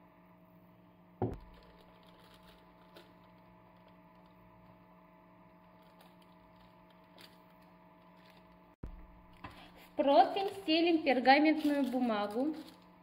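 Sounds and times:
steady low hum: 0.0 - 11.3
glass bowl knock: 1.2 - 1.5.

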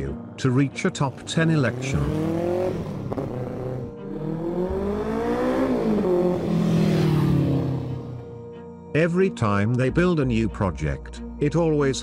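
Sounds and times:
motorcycle engine revving: 1.1 - 8.4.

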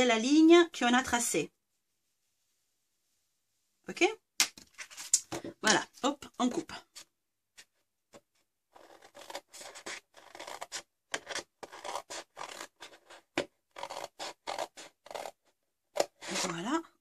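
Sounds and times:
paper rustling: 4.6 - 5.5
scissors snipping paper: 8.8 - 15.4.

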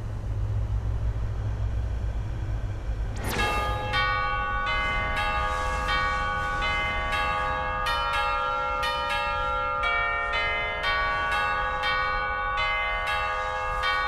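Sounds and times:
church bells ringing a peal: 3.4 - 14.0.

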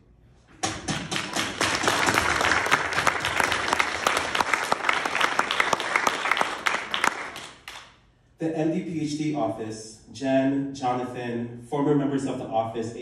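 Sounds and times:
audience applauding: 1.0 - 7.9.

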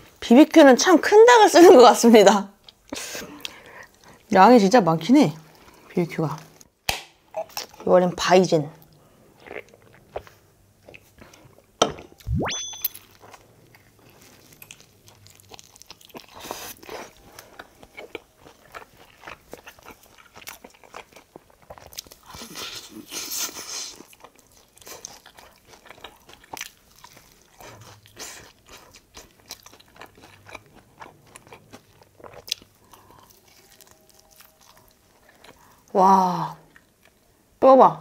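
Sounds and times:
chewing: 8.8 - 11.7, 13.0 - 35.9
crunching fried chicken: 13.2 - 35.9.

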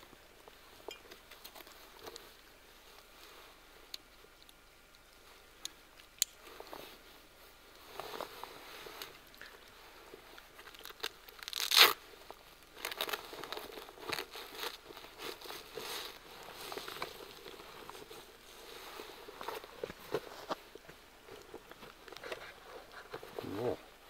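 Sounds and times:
fabric crinkling and rustling: 0.0 - 24.0
fabric ripping: 11.4 - 12.0.

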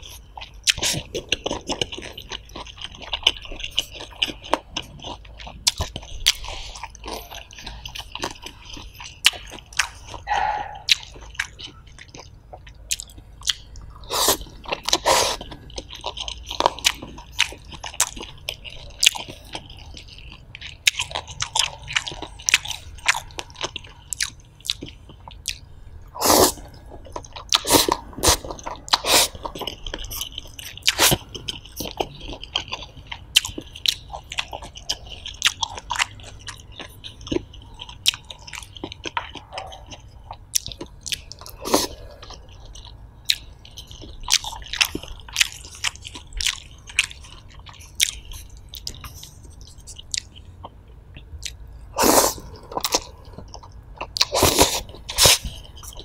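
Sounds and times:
chewing with wet mouth clicks: 0.0 - 56.0
slurping noodles: 14.1 - 15.4, 26.2 - 26.7, 27.6 - 29.4, 52.0 - 52.5.

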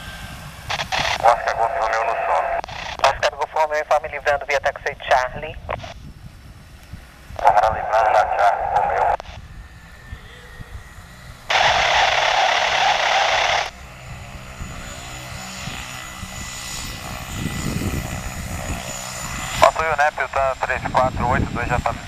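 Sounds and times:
turboprop engine humming: 0.0 - 22.0
radio static hiss: 0.7 - 6.0, 7.4 - 10.6, 11.5 - 13.8, 19.4 - 22.0.

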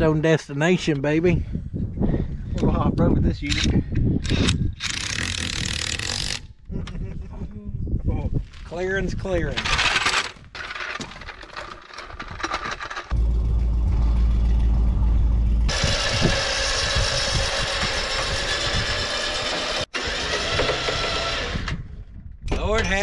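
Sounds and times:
engine running: 13.0 - 21.5.

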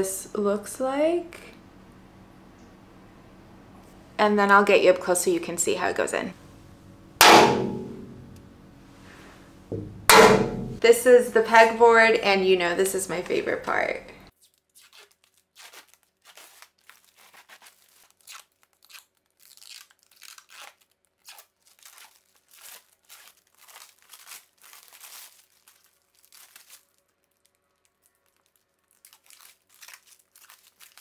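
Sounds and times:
plastic film peeling off: 14.4 - 31.0.

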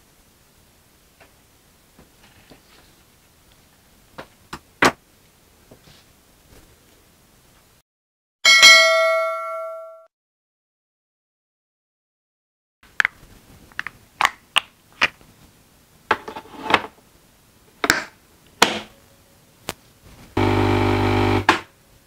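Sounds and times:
coffee machine pump buzzing: 20.4 - 21.6.

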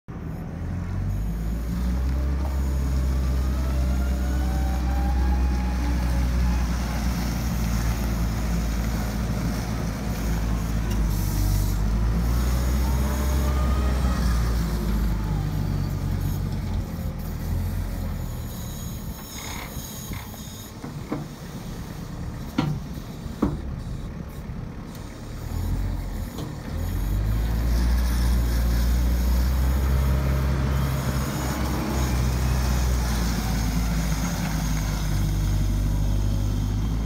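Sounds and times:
diesel engine running: 0.1 - 37.0
whine over engine: 0.1 - 37.0.

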